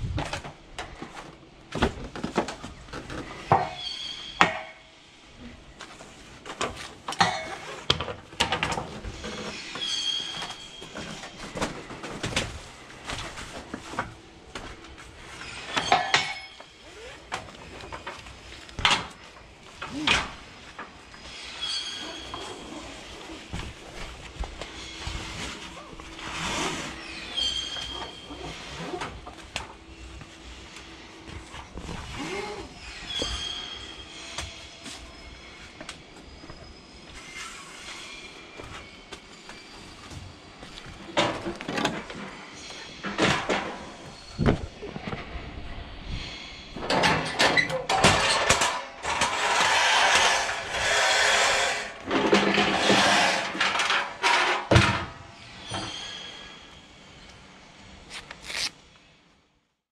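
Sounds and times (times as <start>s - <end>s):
short high squeaks: 3.7s - 5.1s, 9.2s - 11.4s, 21.2s - 23.4s, 24.7s - 29.0s, 32.2s - 40.0s, 55.4s - 57.3s.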